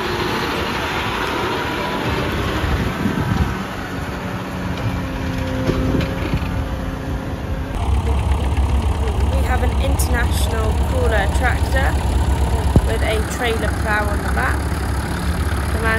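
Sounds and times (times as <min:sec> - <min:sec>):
tractor engine running: 0:07.7 - 0:15.9.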